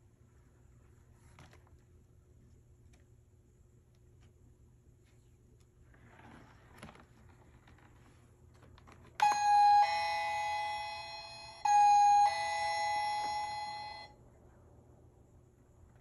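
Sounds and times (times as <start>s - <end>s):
ding-dong doorbell chime: 9.2s - 14.1s.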